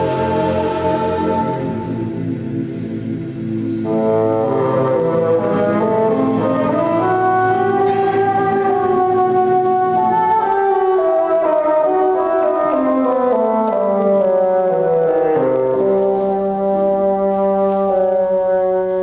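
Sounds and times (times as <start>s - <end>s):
choir sustaining chords: 0.0s - 19.0s
bassoon playing held notes: 3.7s - 19.0s.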